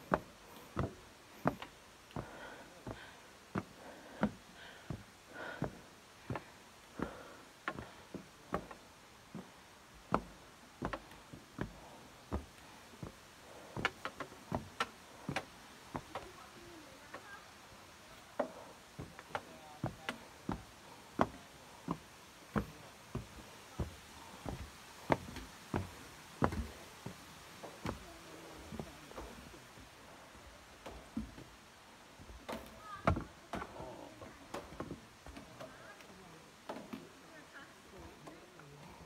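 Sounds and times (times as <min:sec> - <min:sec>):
footsteps on steel stairs: 0:00.0 - 0:16.4, 0:18.3 - 0:31.6, 0:32.2 - 0:36.0.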